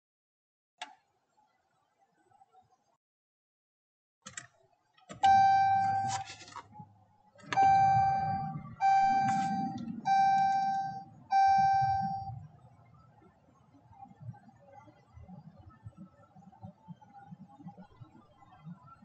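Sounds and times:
dashboard warning chime dings: 5.2 - 6.2, 7.4 - 12.4.

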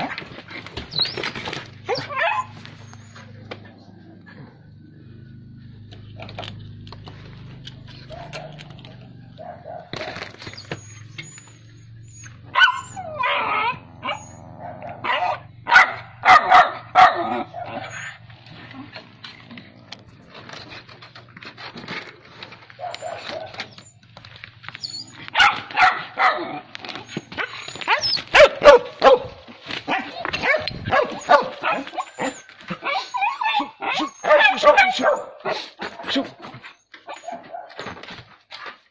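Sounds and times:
dogs barking: 1.8 - 3.9, 7.6 - 19.1, 22.7 - 23.9, 25.0 - 38.0.

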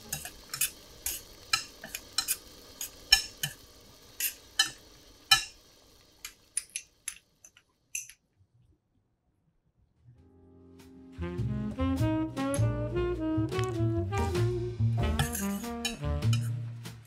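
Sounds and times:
metal spoon scraping a pan: 0.0 - 3.6, 4.2 - 5.6, 15.0 - 16.6.

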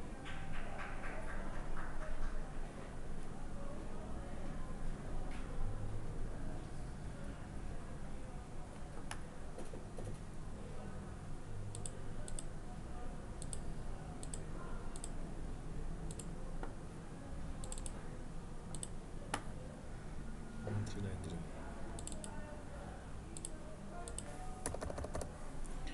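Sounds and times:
computer mouse clicking: 11.7 - 12.5, 13.4 - 13.6, 14.2 - 15.2, 16.1 - 16.3, 17.6 - 18.0, 18.7 - 19.5, 22.0 - 22.3, 23.4 - 25.3.

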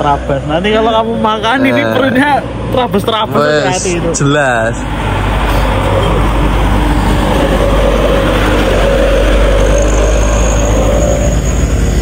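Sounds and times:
heavy truck passing: 0.0 - 12.0
thin high whine: 8.5 - 12.0.

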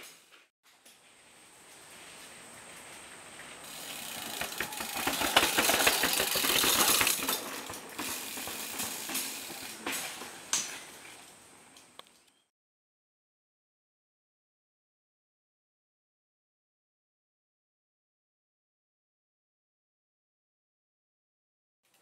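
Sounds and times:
bike chain rattling: 3.6 - 10.9.

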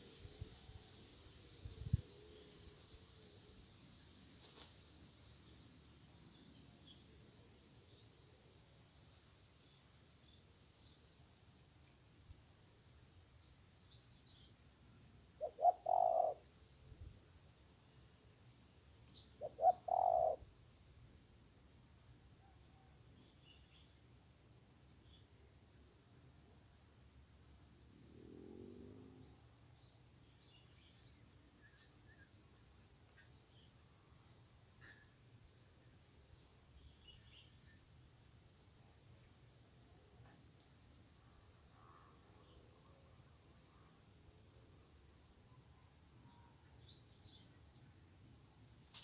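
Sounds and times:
small birds chirping: 11.8 - 27.6, 28.2 - 49.0
dove cooing: 15.4 - 16.4, 19.4 - 20.4.

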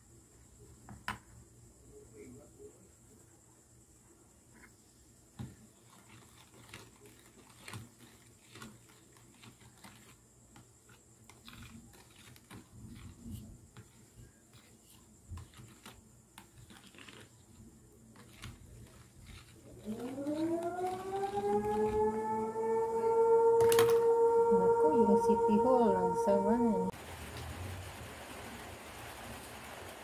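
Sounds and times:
spoon scraping plastic tub: 5.8 - 22.0.

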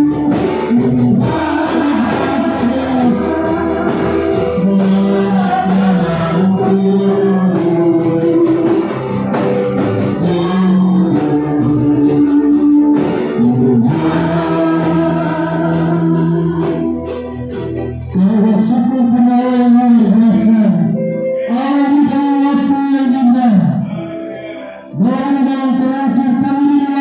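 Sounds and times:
small guitars strumming: 0.0 - 18.0
voices singing slow melody: 0.0 - 27.0.

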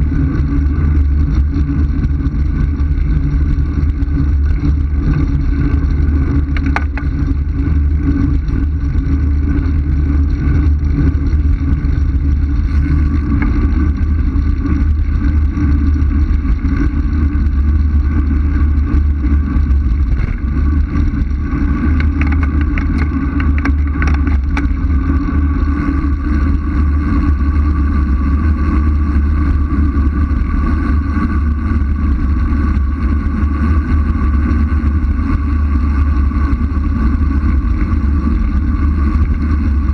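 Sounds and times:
wind buffeting microphone: 2.8 - 27.5.

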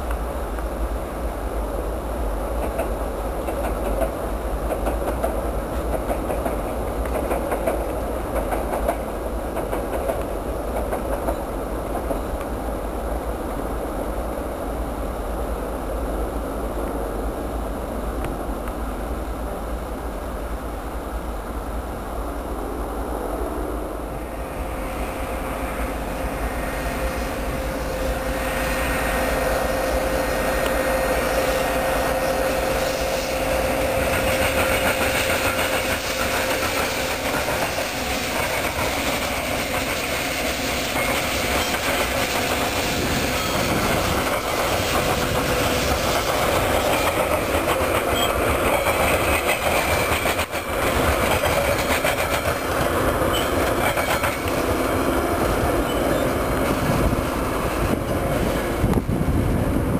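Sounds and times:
train wheels on rails: 0.0 - 59.9
diesel locomotive engine running: 15.5 - 59.9
steady whine: 16.7 - 47.7.

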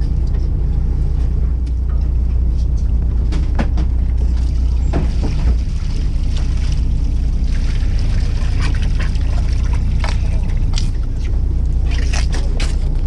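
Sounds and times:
boat engine rumbling: 0.0 - 13.0
water splashing and dribbling: 2.7 - 13.0.

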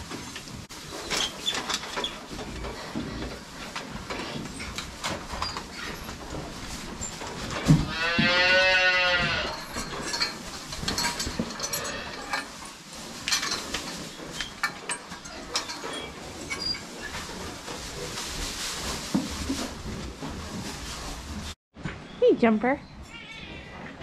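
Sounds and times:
hay rustling: 0.0 - 21.6
light knocks and clinks: 9.1 - 16.8.

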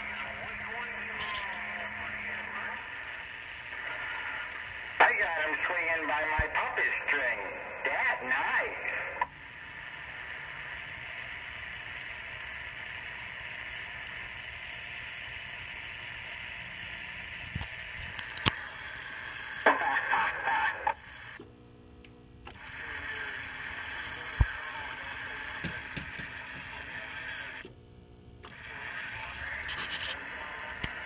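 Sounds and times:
garbled radio voice: 0.0 - 3.1, 3.7 - 9.2, 19.6 - 21.0
radio static hiss: 0.0 - 31.0.

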